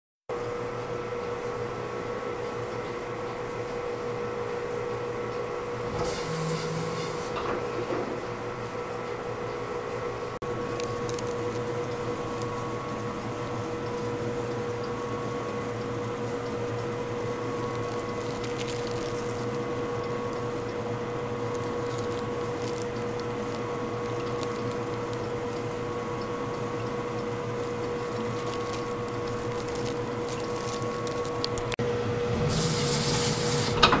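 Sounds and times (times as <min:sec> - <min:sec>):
planer motor humming: 0:05.8 - 0:08.4, 0:10.4 - 0:34.0
planer cutting wood hiss: 0:05.9 - 0:07.5, 0:32.3 - 0:34.0.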